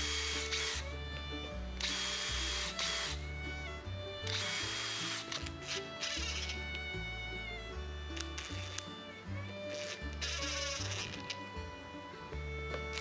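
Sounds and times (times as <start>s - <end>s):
drill cutting into metal: 0.0s - 0.8s, 1.8s - 3.2s, 4.2s - 6.6s, 8.4s - 8.9s, 9.7s - 11.4s
background music: 0.0s - 13.0s.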